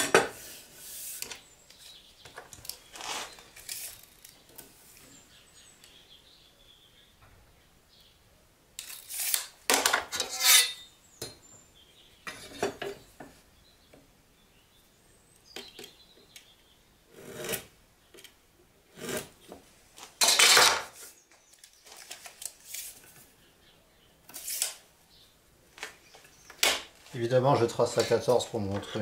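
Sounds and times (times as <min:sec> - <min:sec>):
wooden blocks and tools moved: 0:00.0 - 0:05.0, 0:19.0 - 0:23.3.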